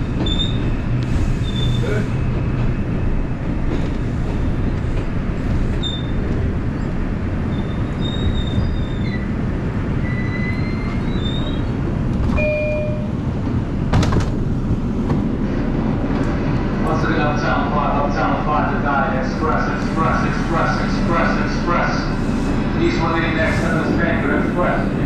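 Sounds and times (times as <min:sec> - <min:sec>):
train wheels rumbling: 0:00.0 - 0:25.0
thin wheel squeals: 0:10.0 - 0:11.7.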